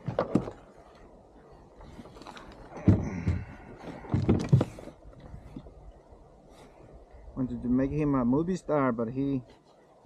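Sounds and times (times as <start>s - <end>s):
fishing gear thumping on kayak: 2.2s - 5.0s.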